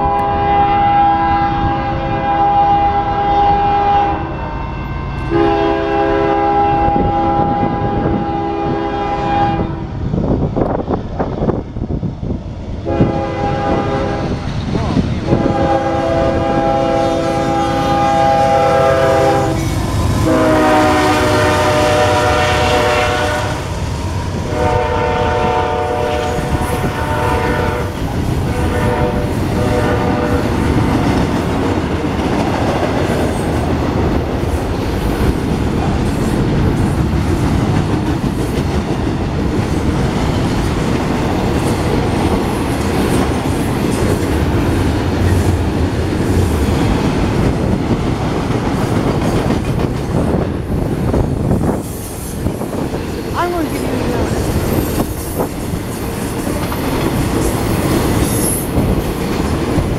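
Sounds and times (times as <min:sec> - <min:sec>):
locomotive air horn blasts: 0:00.0 - 0:09.9, 0:12.9 - 0:14.3, 0:15.3 - 0:23.7, 0:24.4 - 0:30.6.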